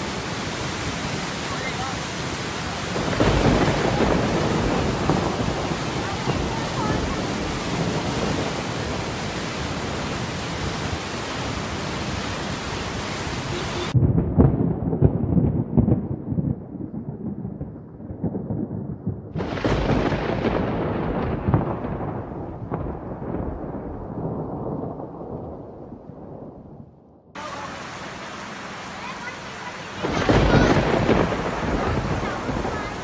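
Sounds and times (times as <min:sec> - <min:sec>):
sharp thunderclap: 0:00.0 - 0:13.0, 0:13.9 - 0:27.4, 0:30.0 - 0:33.0
floodwater rushing through spillway: 0:00.0 - 0:14.0, 0:27.4 - 0:33.0
rolling thunder: 0:00.0 - 0:27.4, 0:29.9 - 0:33.0
rain: 0:00.0 - 0:33.0.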